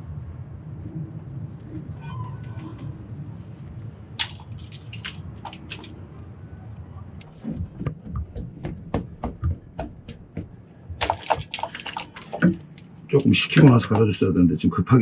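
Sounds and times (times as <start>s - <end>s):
metal tool clinking on engine: 4.2s - 6.0s, 11.0s - 14.4s.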